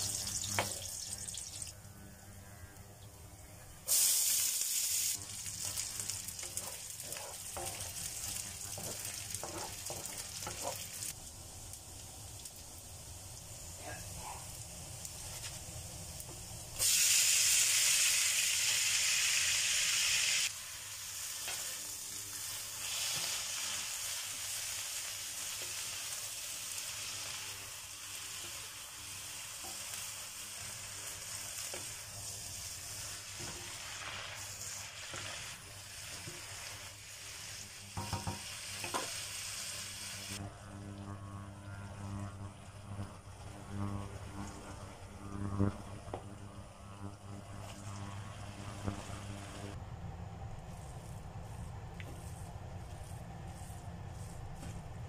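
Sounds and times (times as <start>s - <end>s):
food sizzling in a wok: 0.0s - 1.8s, 3.8s - 40.5s, 42.5s - 49.8s
wooden spatula scraping wok: 5.2s - 11.2s, 28.2s - 39.3s.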